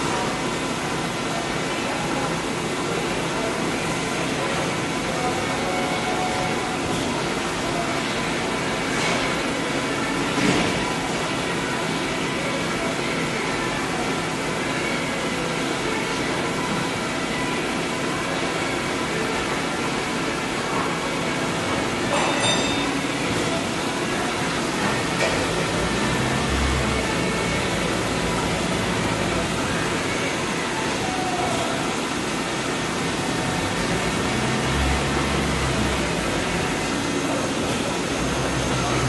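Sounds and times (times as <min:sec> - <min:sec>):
lathe mechanical hum and hiss: 0:00.0 - 0:39.0.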